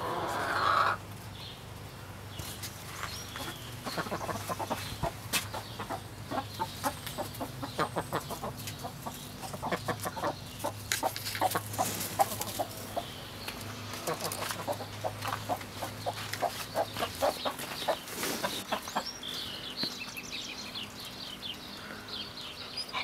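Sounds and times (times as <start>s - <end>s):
hens clucking: 0.0s - 1.2s, 2.9s - 19.9s.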